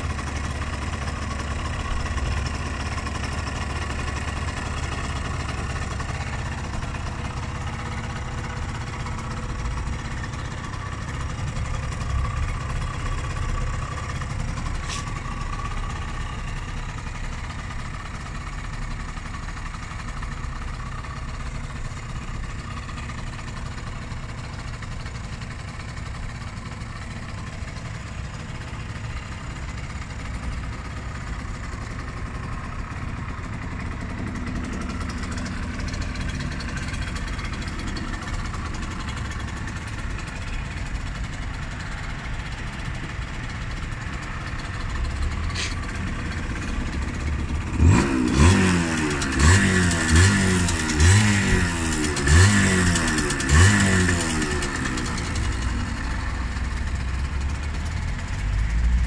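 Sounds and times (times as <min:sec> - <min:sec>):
two-stroke motorcycle engine idling: 0:00.0 - 0:59.0
motorcycle engine revving: 0:27.2 - 0:59.0.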